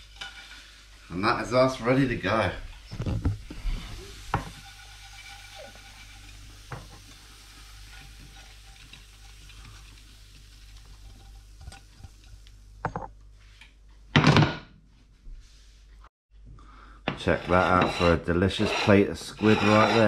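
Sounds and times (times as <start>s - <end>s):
food scraping out of frying pan: 0.0s - 1.2s, 2.3s - 12.3s, 17.2s - 20.0s
faint oil sizzle: 0.0s - 13.6s.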